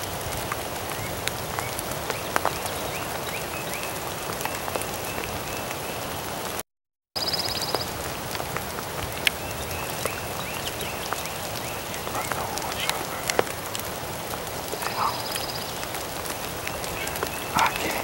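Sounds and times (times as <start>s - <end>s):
rain on grass and leaves: 0.0s - 6.6s, 7.2s - 18.0s
raindrops ticking: 0.0s - 6.6s, 7.4s - 18.0s.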